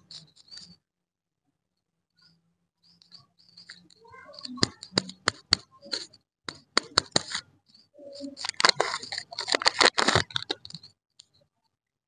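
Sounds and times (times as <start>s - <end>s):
wrapper crinkling: 8.4s - 10.8s.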